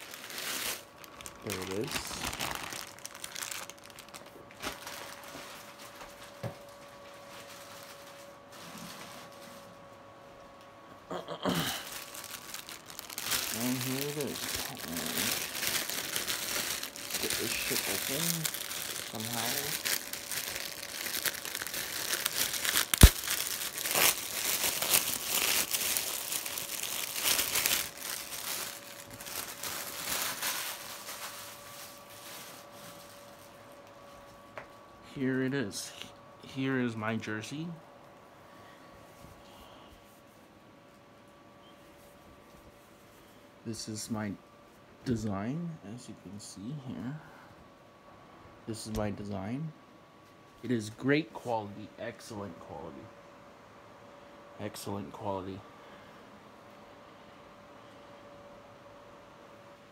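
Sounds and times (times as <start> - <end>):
plastic mailer bag rustling: 0.0 - 9.8, 11.7 - 33.6
faint steady hum: 0.0 - 59.9.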